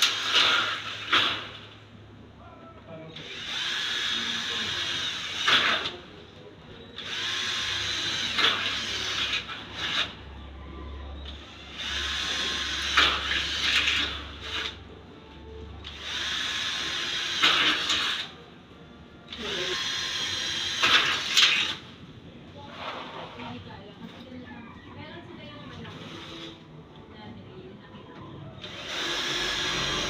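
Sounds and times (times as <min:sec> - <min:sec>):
cordless drill drilling into metal: 0:00.0 - 0:01.5, 0:03.2 - 0:06.0, 0:07.0 - 0:10.1, 0:11.4 - 0:14.8, 0:15.8 - 0:18.3, 0:19.3 - 0:21.8, 0:28.6 - 0:30.0.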